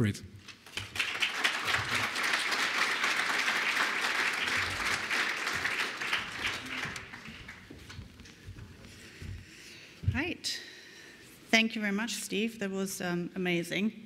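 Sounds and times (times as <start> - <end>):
audience applauding: 0.6 - 8.1.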